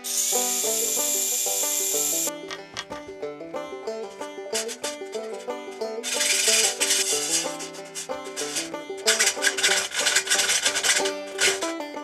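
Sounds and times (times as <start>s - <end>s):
metal grate being cut: 0.0s - 2.3s, 6.0s - 11.7s
plucked banjo music: 0.0s - 12.0s.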